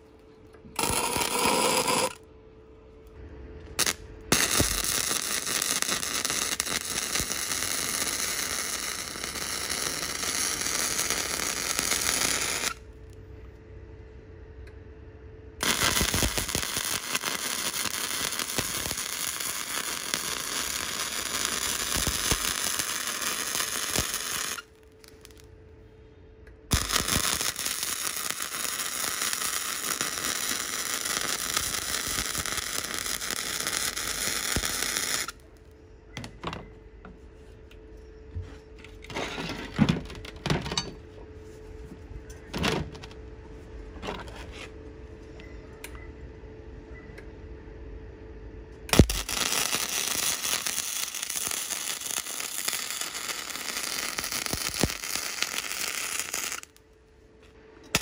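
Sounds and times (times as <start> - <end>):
steady hum: 0.0 - 58.0
welding arc crackling and hissing: 0.8 - 2.2, 3.7 - 12.9, 15.6 - 25.5, 26.7 - 35.4, 48.9 - 56.8.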